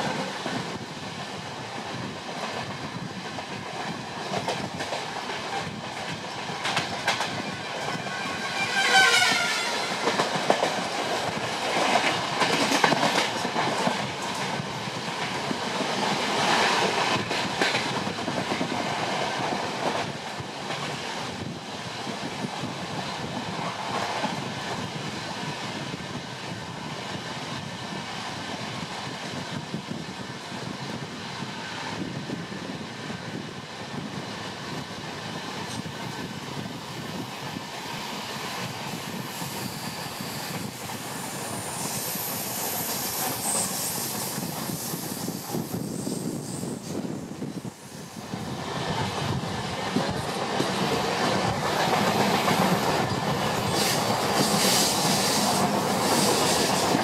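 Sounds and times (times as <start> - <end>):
train wheels clicking on rails: 0.0 - 57.0
train horn blast: 8.0 - 10.2.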